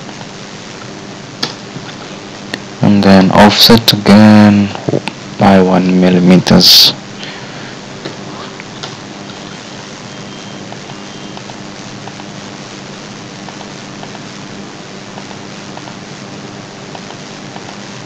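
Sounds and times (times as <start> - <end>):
faint low hum: 0.0 - 18.0
steady background hiss: 0.0 - 18.0.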